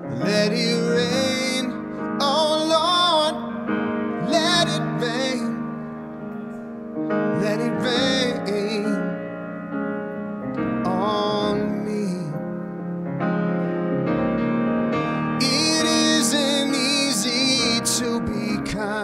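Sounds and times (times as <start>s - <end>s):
man singing soul ballad: 0.0s - 5.9s, 7.2s - 9.3s, 10.7s - 12.7s, 15.1s - 19.0s
piano chords: 0.0s - 19.0s.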